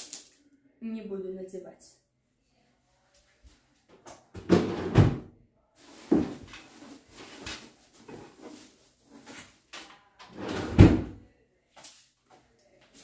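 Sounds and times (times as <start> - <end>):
drawer sliding open and shut: 4.4 - 5.3, 10.2 - 11.2.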